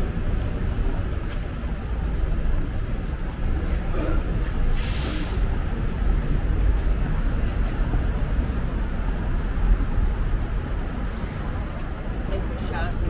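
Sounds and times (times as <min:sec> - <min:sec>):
road traffic rumble: 0:00.0 - 0:13.0
bus air brakes hissing: 0:04.3 - 0:05.6.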